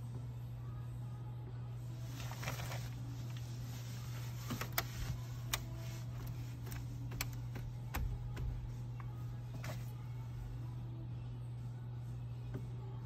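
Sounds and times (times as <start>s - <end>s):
steady low hum: 0.0s - 13.0s
cloth rubbing on dashboard: 2.0s - 10.4s.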